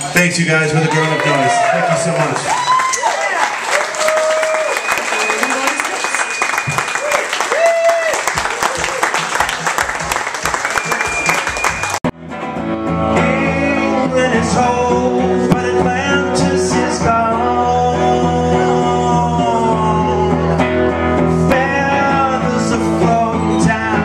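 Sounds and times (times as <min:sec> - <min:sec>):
electric guitar: 0:11.1 - 0:24.0.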